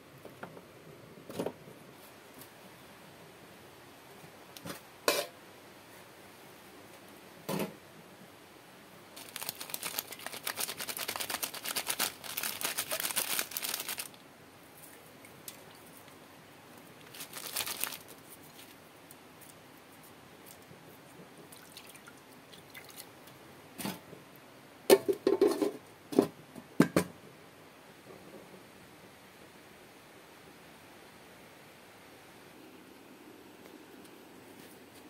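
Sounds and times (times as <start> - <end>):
crinkling handling noise: 9.2 - 20.7.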